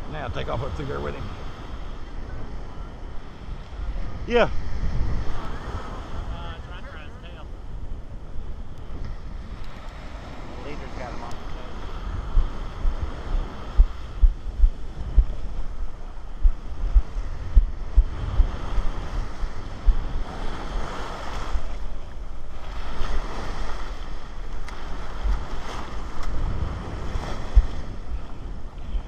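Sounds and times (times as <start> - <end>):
surf washing in: 0.0 - 29.0
wind buffeting microphone: 0.0 - 29.0.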